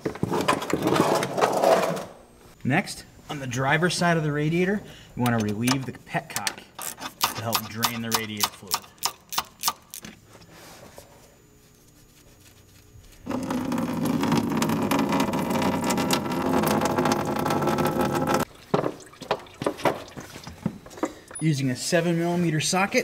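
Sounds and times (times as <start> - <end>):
coolant pouring and splashing: 13.3 - 21.4
sharp drips: 18.4 - 21.4.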